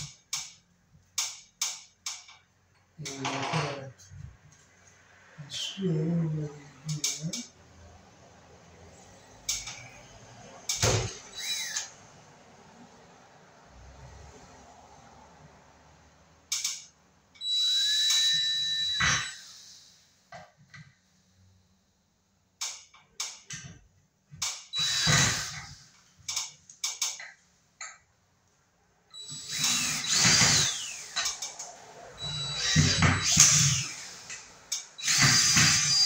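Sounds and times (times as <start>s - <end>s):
power drill driving screw: 11.0s - 11.9s, 24.4s - 25.9s, 29.2s - 36.0s.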